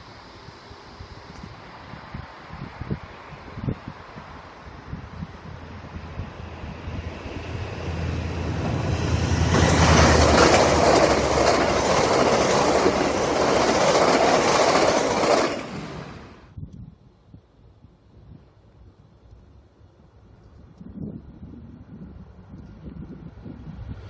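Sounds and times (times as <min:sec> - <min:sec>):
locomotive engine drone: 0:05.3 - 0:16.5
wheels on rails: 0:07.2 - 0:16.4.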